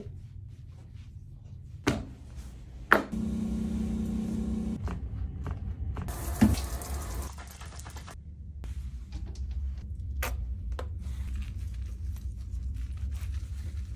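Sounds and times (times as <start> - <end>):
water flowing: 6.1 - 8.2
water spraying: 6.1 - 8.2.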